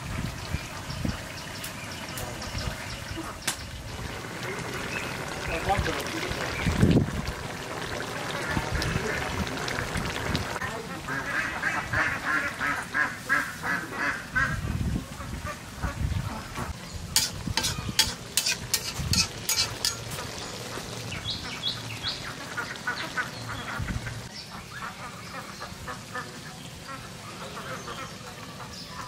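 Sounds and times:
ducks quacking: 0:07.8 - 0:16.8, 0:17.6 - 0:29.0.

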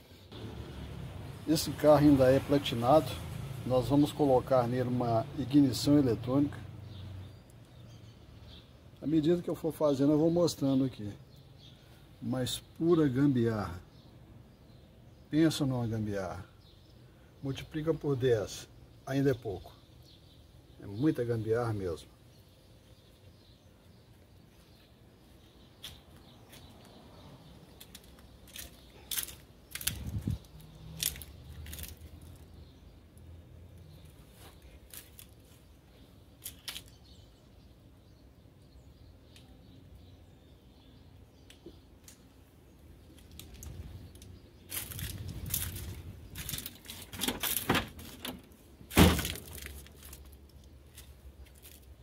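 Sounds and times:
scuffing and handling noises: 0:24.1 - 0:27.0, 0:27.7 - 0:32.4, 0:34.0 - 0:35.8, 0:44.7 - 0:48.2, 0:49.1 - 0:52.0.

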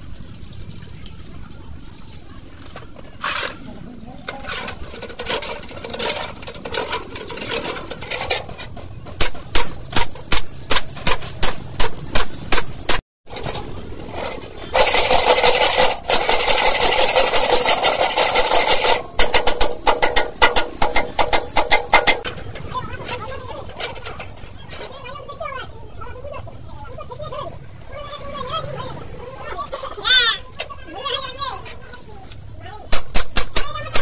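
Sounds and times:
brush scrubbing bearing in solvent: 0:14.2 - 0:22.3.

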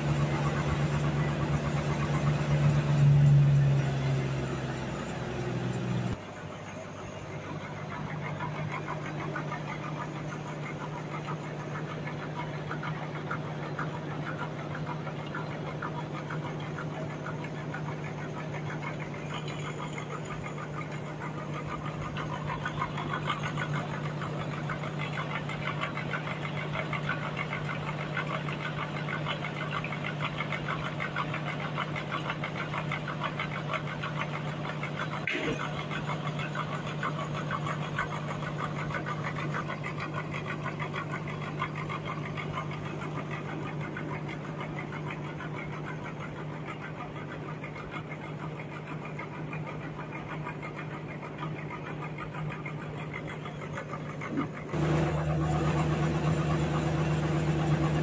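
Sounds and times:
motor hum: 0:00.0 - 0:58.0.

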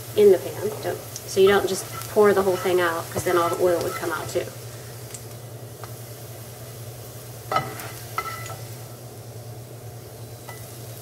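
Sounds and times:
oil sizzling in a skillet: 0:00.0 - 0:11.0
spatula scraping vegetables: 0:00.5 - 0:04.5.

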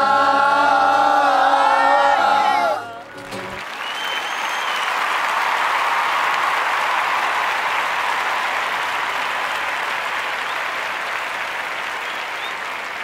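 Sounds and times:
crowd applauding: 0:02.9 - 0:13.0.

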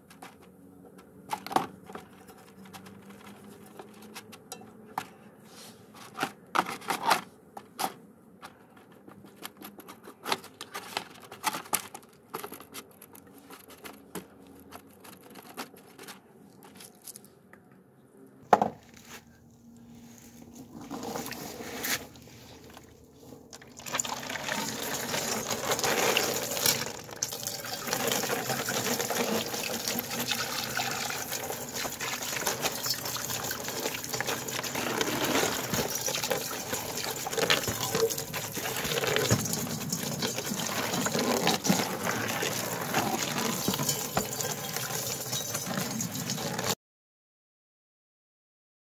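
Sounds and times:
water running and splashing: 0:23.7 - 0:46.8
brush scraping on brass dish: 0:28.1 - 0:46.7.

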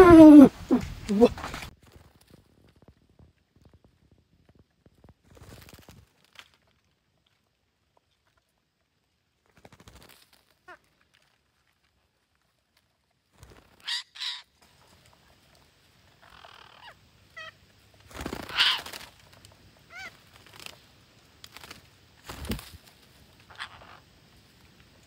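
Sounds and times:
parakeets calling: 0:13.8 - 0:14.4.

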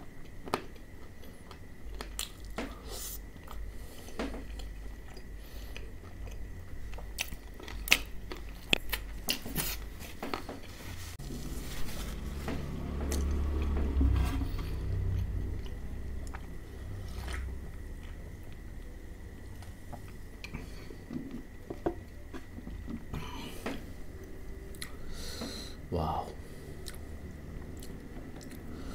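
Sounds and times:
crunchy chewing: 0:00.0 - 0:25.7, 0:26.4 - 0:28.9
wet chewing: 0:14.6 - 0:23.1.

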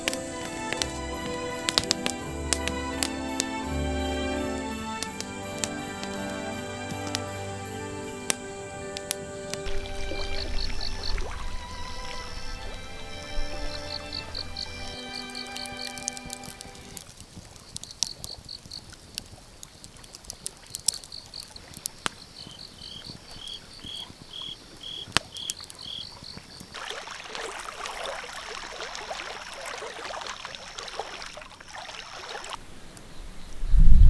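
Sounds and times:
lower-pitched insect chirping: 0:00.0 - 0:17.0, 0:17.6 - 0:26.8
campfire popping and crackling: 0:00.0 - 0:33.1
night insects chirping: 0:00.0 - 0:33.9.

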